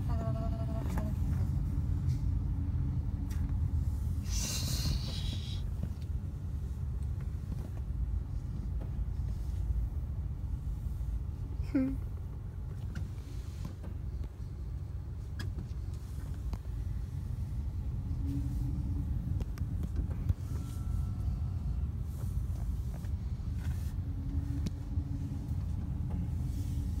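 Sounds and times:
car engine and road rumble: 0.0s - 27.0s.

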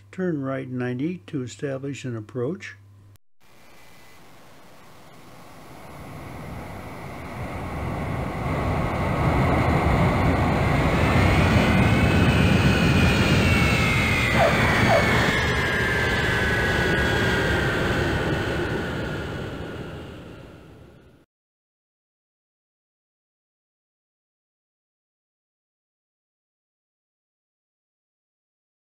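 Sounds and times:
jet aircraft flying over: 4.2s - 21.2s.

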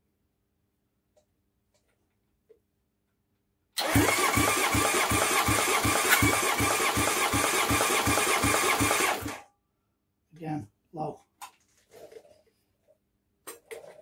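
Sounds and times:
engine cranking on starter: 3.8s - 9.5s.

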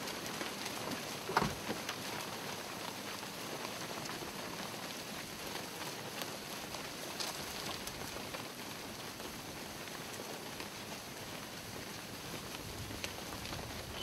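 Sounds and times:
many hooves shuffling: 0.0s - 14.0s.

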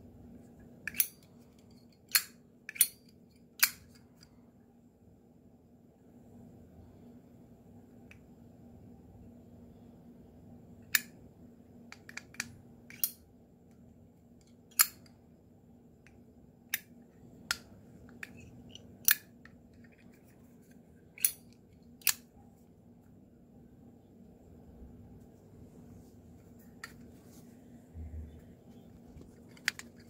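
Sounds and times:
lighter lid clicking open and shut: 2.1s - 3.0s.

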